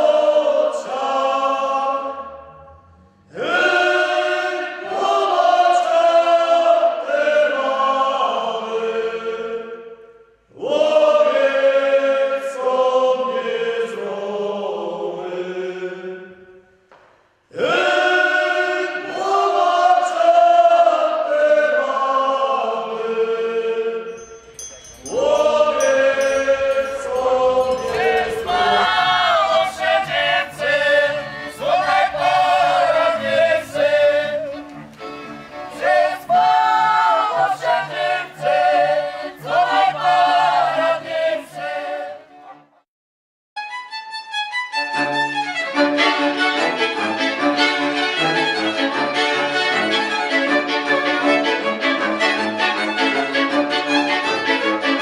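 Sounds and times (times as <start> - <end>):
group singing in unison: 0.0 - 16.6, 17.5 - 42.4.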